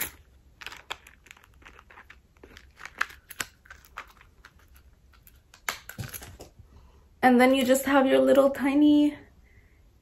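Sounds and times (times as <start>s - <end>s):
metal chain links clinking: 0.0s - 0.3s.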